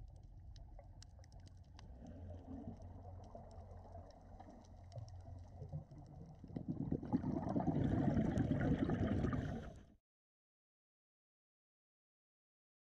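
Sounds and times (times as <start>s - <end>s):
underwater bubbles gurgling: 0.0s - 10.0s.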